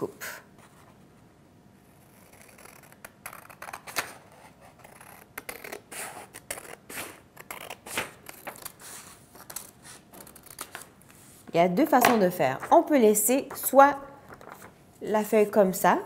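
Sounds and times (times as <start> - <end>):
scissors cutting paper: 2.0 - 10.9.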